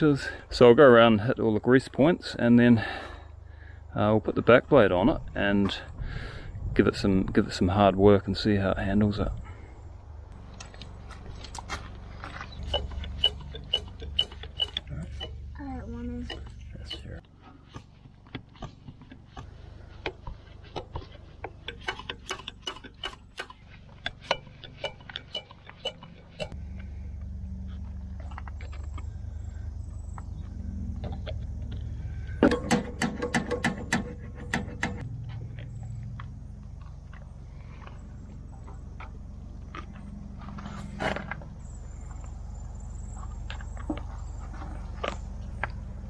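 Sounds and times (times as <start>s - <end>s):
diesel tractor engine idling: 10.4s - 17.4s, 19.2s - 46.0s
sharp metallic clicks: 12.6s - 15.4s, 21.5s - 26.6s
metallic clatter: 12.6s - 15.5s, 21.6s - 26.6s
faint low hum: 25.4s - 33.2s.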